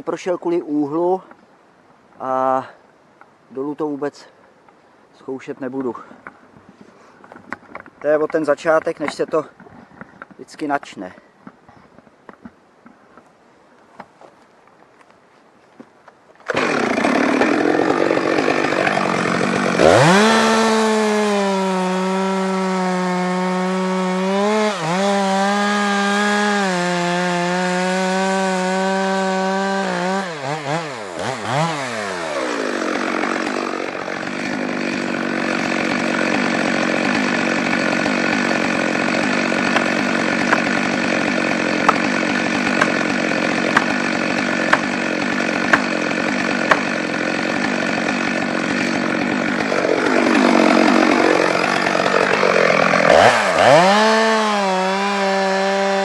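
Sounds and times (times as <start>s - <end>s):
chainsaw cutting wood: 16.4s - 56.0s
axe knocking felling wedge: 45.7s - 45.9s, 46.6s - 46.9s.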